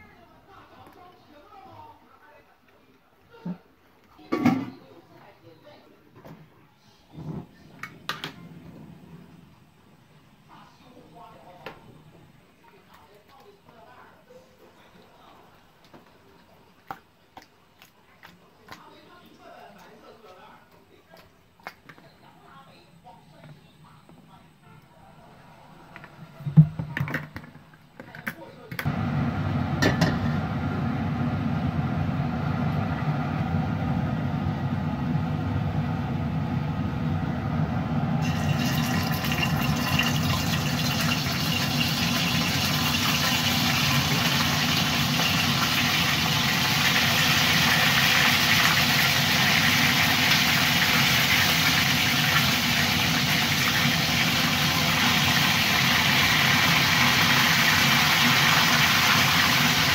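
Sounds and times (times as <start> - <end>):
stove low hum: 6.8 - 12.4, 28.8 - 59.9
chicken wings sizzling in oil: 37.2 - 59.9.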